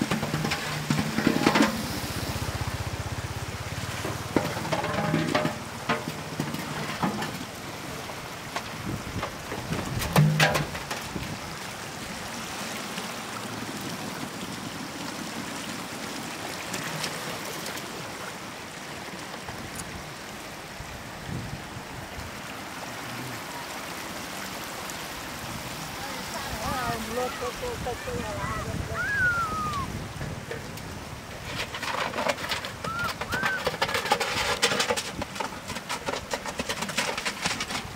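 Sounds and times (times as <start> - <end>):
floodwater running over road: 0.0 - 37.9
water splashing and trickling: 0.0 - 37.9
whistled falling note: 29.0 - 29.9.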